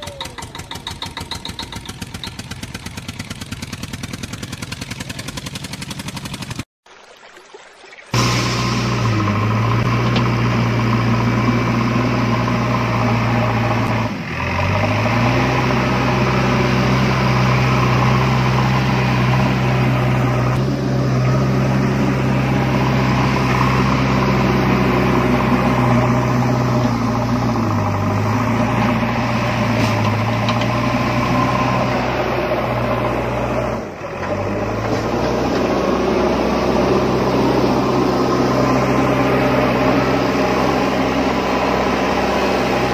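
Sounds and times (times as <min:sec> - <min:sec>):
heavy vehicle engine idling: 0:00.0 - 0:06.5.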